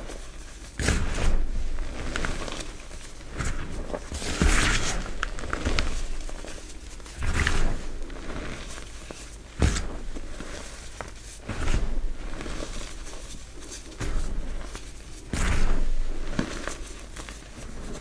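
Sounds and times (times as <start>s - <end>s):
faint crumbly crackles: 0.0s - 18.0s
hands crushing chalk: 0.0s - 18.0s.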